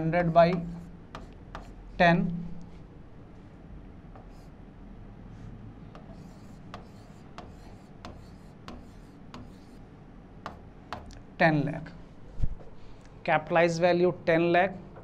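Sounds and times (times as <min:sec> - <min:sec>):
stylus tapping and sliding on glass: 0:06.0 - 0:09.7.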